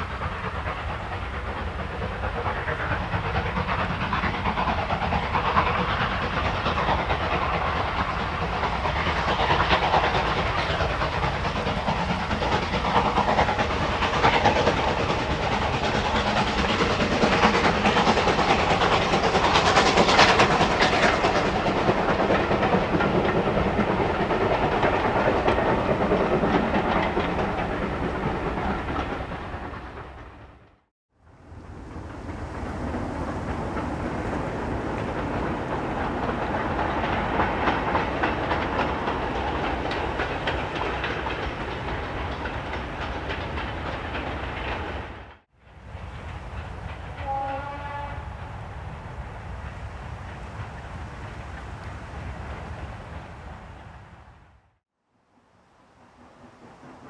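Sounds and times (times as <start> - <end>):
coaches rattling on rails: 0.0 - 30.4, 31.6 - 54.0
steam locomotive chuffing: 0.0 - 30.7, 31.3 - 54.2, 55.5 - 57.0.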